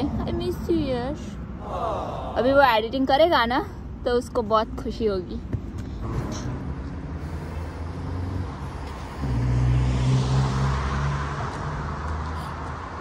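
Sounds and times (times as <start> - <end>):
road traffic: 0.0 - 13.0
car passing close: 6.0 - 13.0.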